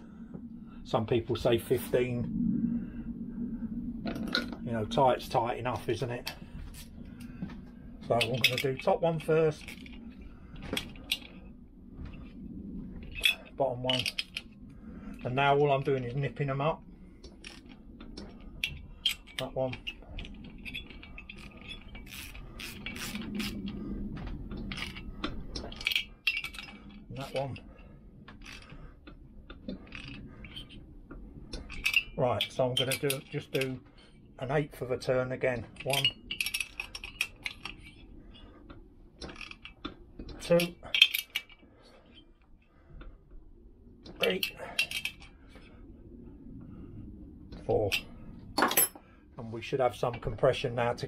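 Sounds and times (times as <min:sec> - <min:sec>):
wrench and socket clinking: 0:20.6 - 0:23.6.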